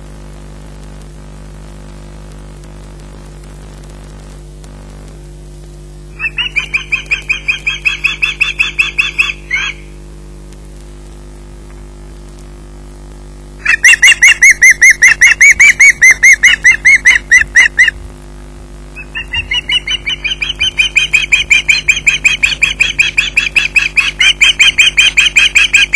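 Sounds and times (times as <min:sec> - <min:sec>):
osprey piping whistles: 0:06.2 - 0:09.9, 0:13.6 - 0:17.9, 0:19.0 - 0:25.9.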